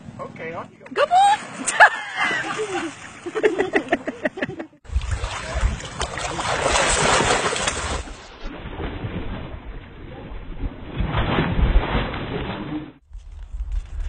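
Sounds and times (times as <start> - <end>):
wind rumbling on microphone: 4.4 - 14.0
dogs splashing into water: 4.9 - 9.1.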